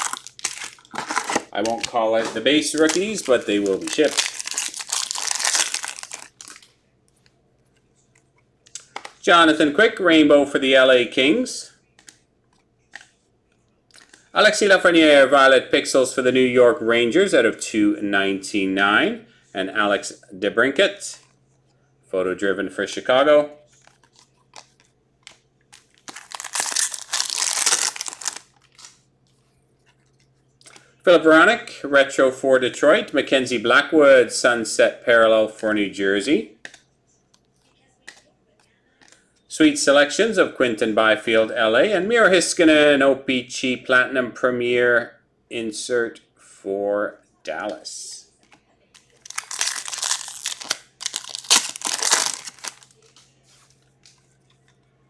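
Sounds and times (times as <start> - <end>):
foil wrapper crinkling: 0.0 - 6.8, 23.7 - 29.0, 48.4 - 54.2.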